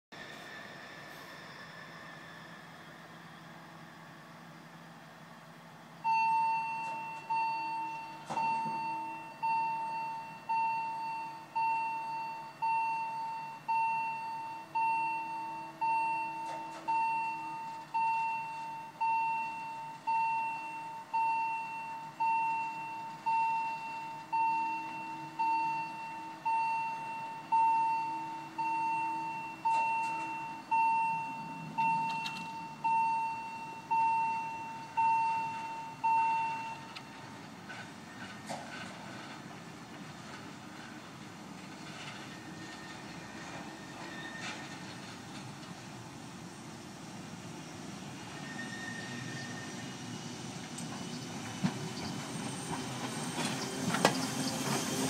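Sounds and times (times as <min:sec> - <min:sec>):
level crossing warning bell: 0:06.0 - 0:37.3.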